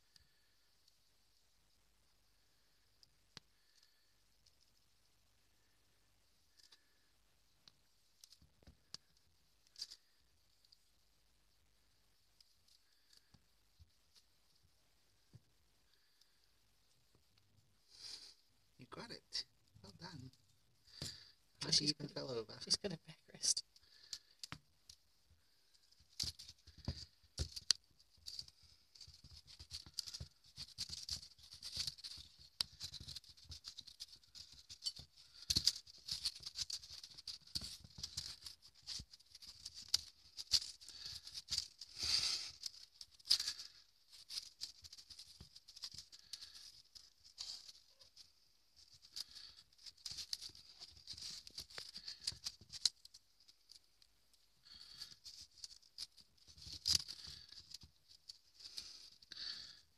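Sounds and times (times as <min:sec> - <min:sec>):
kittens pouncing on carpet: 0:25.8 - 0:53.2.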